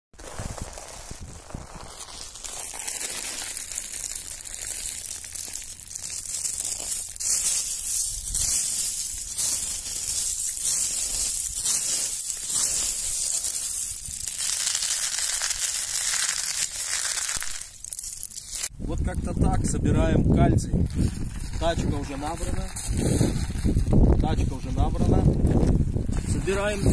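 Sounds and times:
shells crunching and rattling: 1.9s - 18.7s.

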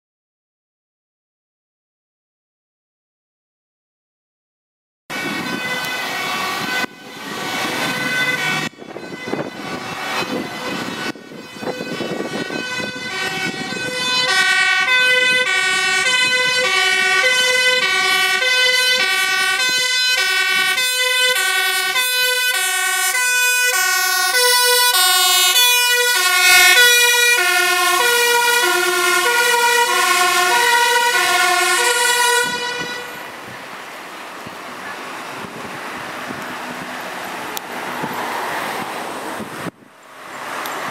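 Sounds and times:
fire engine two-tone siren: 5.1s - 33.6s
traffic and road noise: 5.1s - 40.9s.

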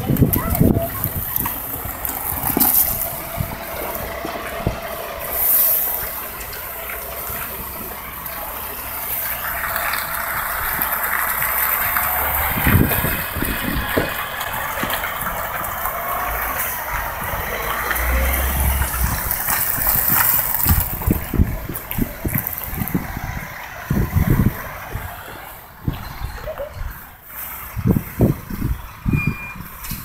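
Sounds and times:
trailer load rattling and clanking: 0.0s - 30.0s
truck passing: 0.0s - 30.0s
low thumps: 16.6s - 24.6s.

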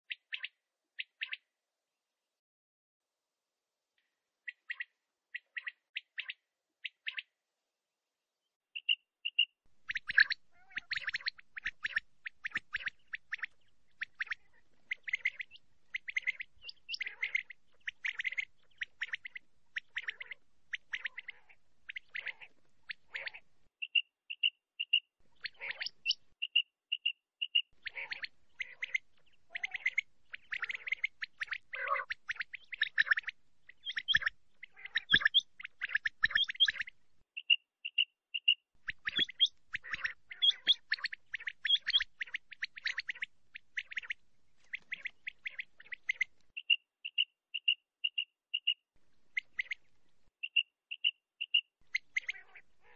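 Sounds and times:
quail chirping and whistling: 0.1s - 1.5s, 4.5s - 7.3s, 8.8s - 52.9s.

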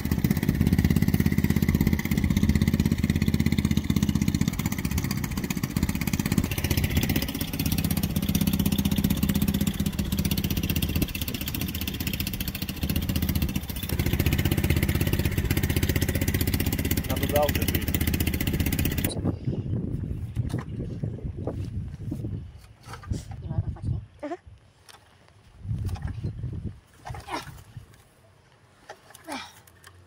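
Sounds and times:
engine idling: 0.0s - 19.2s.

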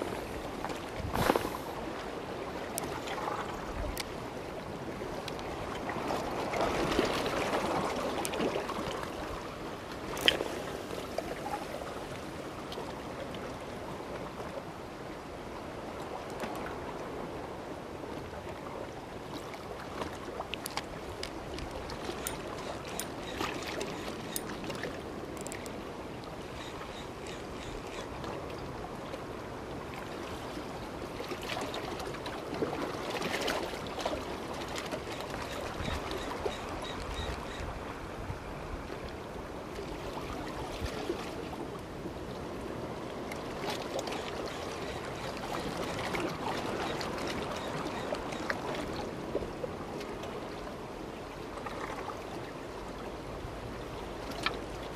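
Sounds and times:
sea water lapping against rocks: 0.0s - 13.6s, 19.2s - 37.6s, 43.2s - 50.6s.

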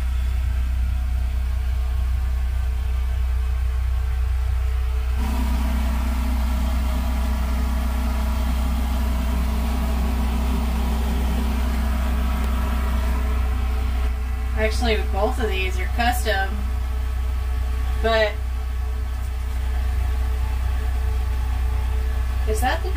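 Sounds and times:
low droning hum: 0.0s - 22.9s
higher hum and hiss: 4.8s - 22.9s.

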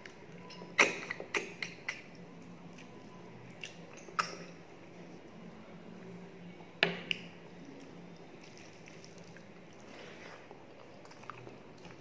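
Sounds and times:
wet chewing: 7.7s - 12.0s.

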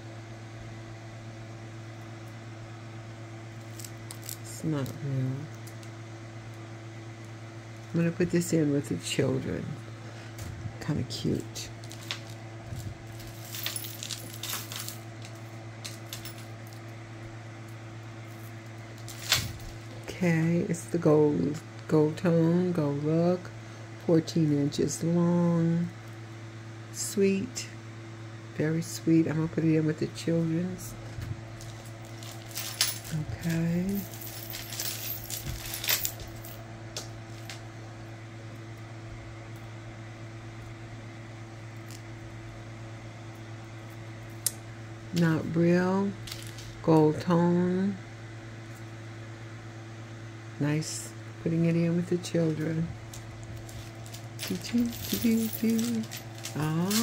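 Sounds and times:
steady low hum: 0.0s - 57.0s
metal jewelry clinking: 3.6s - 4.5s, 13.1s - 16.9s, 18.3s - 19.7s, 31.6s - 36.6s, 53.1s - 57.0s.

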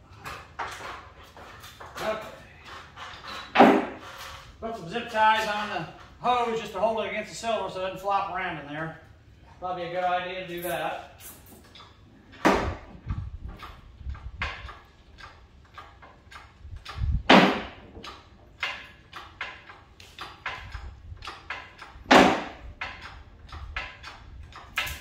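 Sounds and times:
loud metal clanks: 3.4s - 4.2s, 21.5s - 23.1s
metal clicks and knocks: 10.6s - 25.0s.

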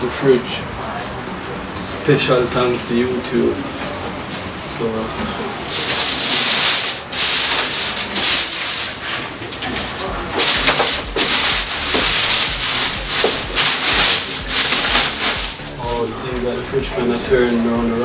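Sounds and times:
plastic wrapping crinkling: 5.7s - 15.9s.

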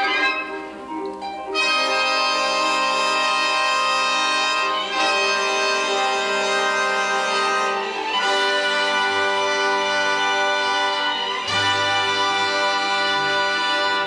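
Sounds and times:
orchestral strings holding chords: 0.0s - 14.0s.

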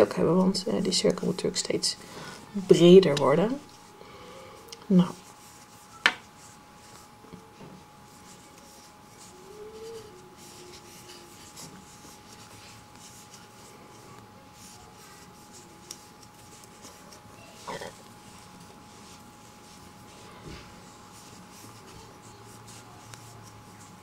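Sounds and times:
yarn rustling and rubbing: 4.9s - 24.0s
soft scratchy ticks of stitches: 8.1s - 20.2s, 20.8s - 24.0s.

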